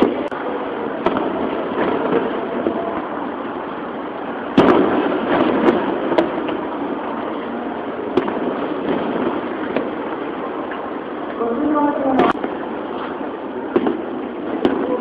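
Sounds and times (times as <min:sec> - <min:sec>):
distant fireworks bursting: 0:00.0 - 0:11.4, 0:12.2 - 0:15.0
steady background noise: 0:00.0 - 0:15.0.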